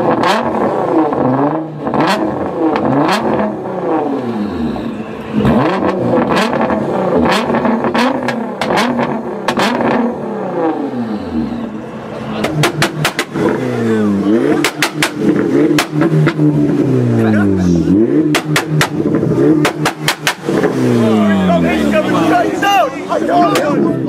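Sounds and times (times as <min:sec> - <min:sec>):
car engine revving hard: 0:00.0 - 0:24.0
exhaust pops and cracks: 0:14.6 - 0:16.4, 0:18.3 - 0:20.8.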